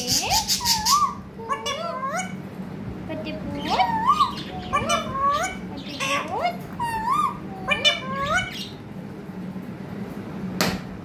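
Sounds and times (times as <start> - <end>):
parakeet squawking: 0.0 - 2.4, 3.5 - 8.8.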